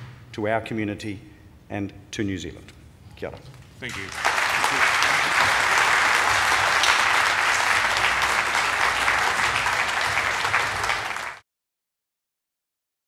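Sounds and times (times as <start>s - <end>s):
audience applauding: 3.9s - 11.4s.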